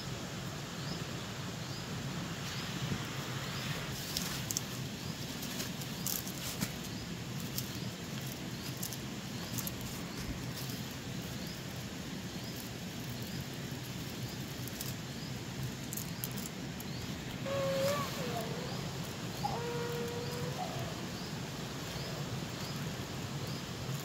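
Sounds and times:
plant stems rustling and snapping: 4.0s - 11.4s, 12.5s - 20.9s.

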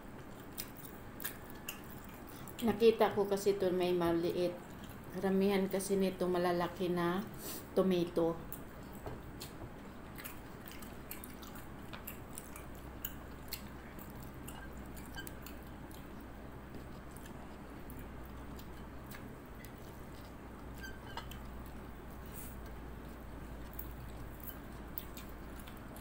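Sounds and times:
faint low hum: 0.0s - 26.0s
person chewing food: 0.1s - 2.6s, 8.5s - 26.0s.

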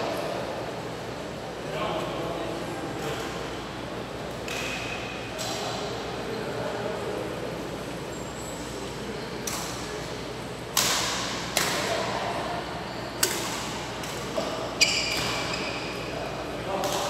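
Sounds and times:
badminton racket hitting shuttlecock: 10.7s - 11.9s.

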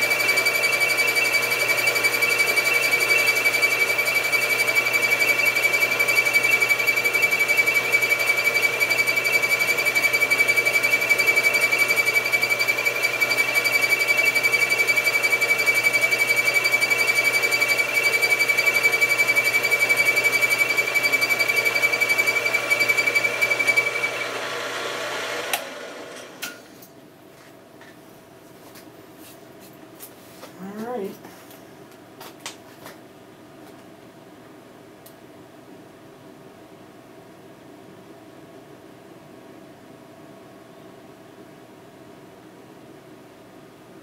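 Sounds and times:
milling machine with high whine: 0.0s - 26.6s.

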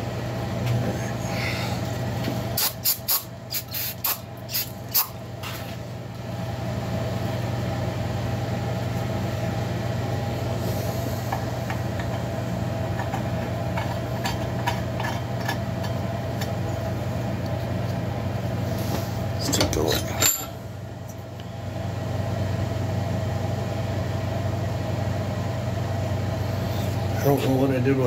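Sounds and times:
steady mechanical hum: 0.0s - 28.0s
aerosol can spraying: 2.6s - 5.1s.

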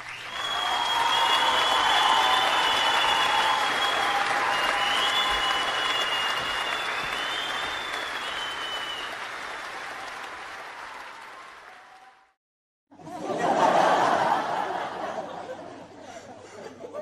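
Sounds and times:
whistles: 0.0s - 9.3s
crowd applause: 0.0s - 12.4s, 13.3s - 15.6s.

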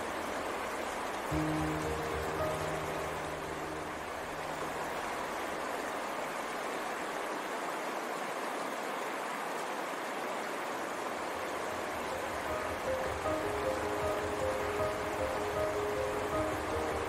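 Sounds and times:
river rushing over rocks: 0.0s - 17.0s
soft background music: 0.8s - 5.4s, 11.6s - 17.0s.

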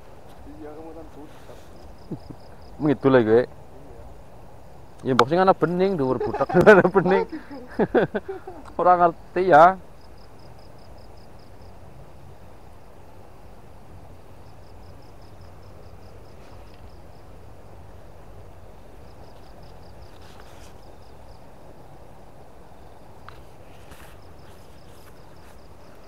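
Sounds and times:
insect trilling: 1.8s - 4.2s, 4.9s - 11.9s.

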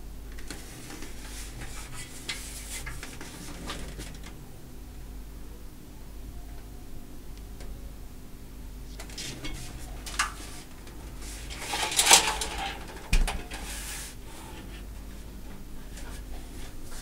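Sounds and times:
cable rustling: 9.0s - 14.9s
computer case scraping: 9.1s - 14.9s.

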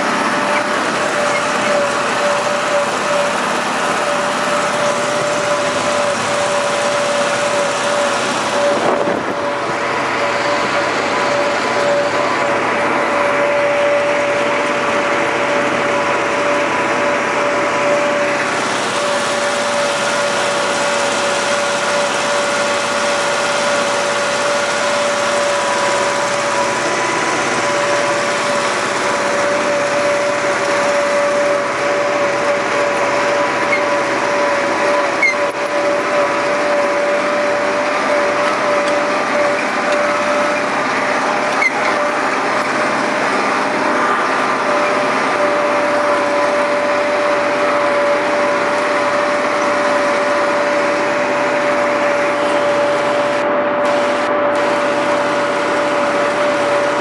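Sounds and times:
steady whining tone: 0.0s - 57.0s
tractor engine under load: 0.0s - 57.0s.

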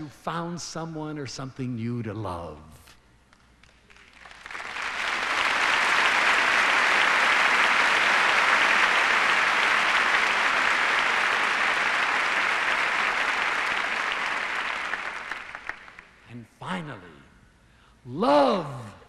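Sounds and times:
large audience applauding: 3.6s - 16.2s.

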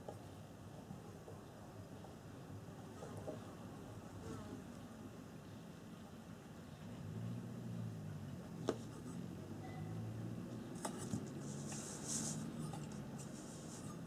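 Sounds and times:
scratchy rubbing and rustling: 10.7s - 14.0s.

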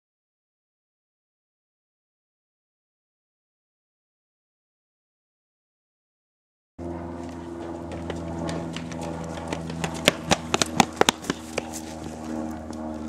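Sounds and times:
steady low hum: 6.8s - 13.0s
footsteps running on pavement: 7.2s - 12.8s.

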